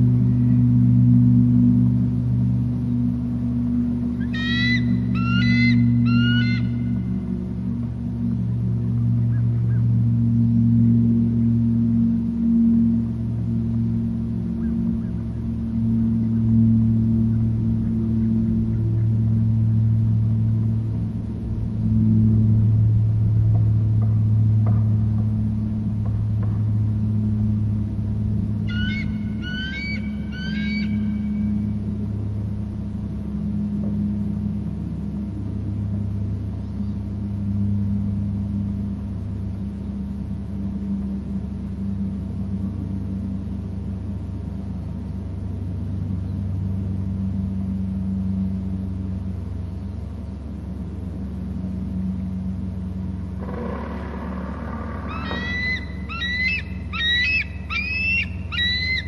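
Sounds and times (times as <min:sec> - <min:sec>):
low hum: 0:00.0 - 0:59.0
eagle calling: 0:04.1 - 0:07.2, 0:28.6 - 0:31.6, 0:53.4 - 0:59.0.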